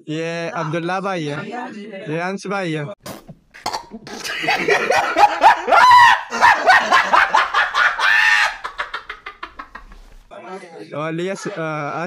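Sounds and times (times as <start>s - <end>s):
drawn-out cries: 5.5s - 9.6s.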